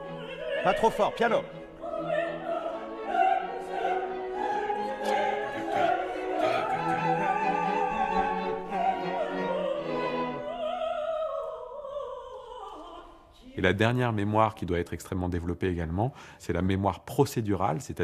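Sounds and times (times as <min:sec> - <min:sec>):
orchestra playing slow classical: 0:00.0 - 0:10.6.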